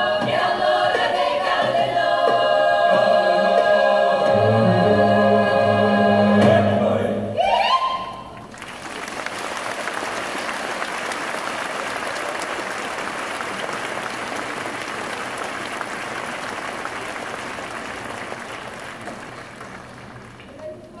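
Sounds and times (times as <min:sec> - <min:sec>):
audience applauding: 0:08.3 - 0:20.9.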